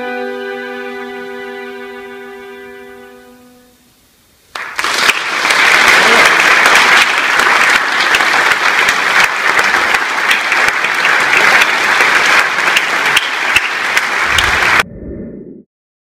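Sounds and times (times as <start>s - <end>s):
audience applauding: 4.5s - 14.8s.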